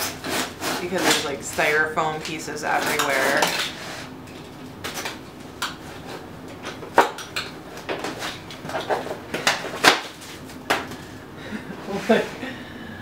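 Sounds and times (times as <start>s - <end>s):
styrofoam packing scraping: 0.0s - 1.8s.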